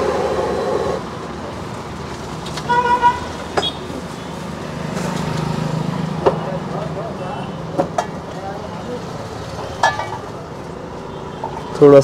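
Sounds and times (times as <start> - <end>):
traffic noise: 0.0 - 12.0
vehicle horn double toot: 2.7 - 3.9.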